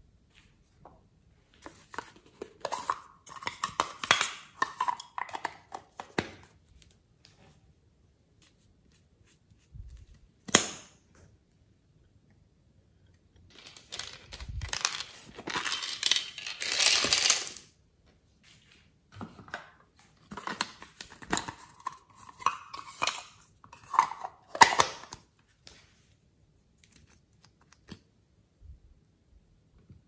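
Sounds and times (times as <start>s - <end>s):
plastic containers rattling: 13.5s - 17.6s.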